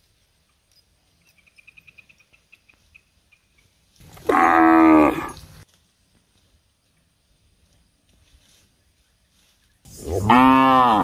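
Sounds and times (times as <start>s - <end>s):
cow mooing: 4.2s - 5.4s, 10.1s - 11.0s.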